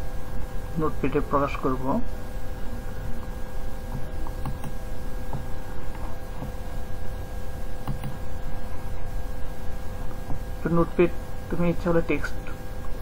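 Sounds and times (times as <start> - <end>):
low electrical hum and whine: 0.0 - 13.0
computer mouse clicks: 3.9 - 5.4, 7.8 - 8.2.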